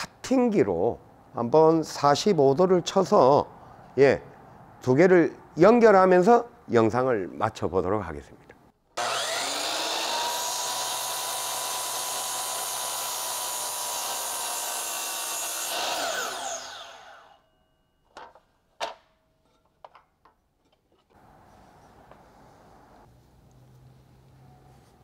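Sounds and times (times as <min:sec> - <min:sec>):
miter saw cutting wood: 0:09.0 - 0:17.4
saw blade spinning down: 0:09.0 - 0:17.4.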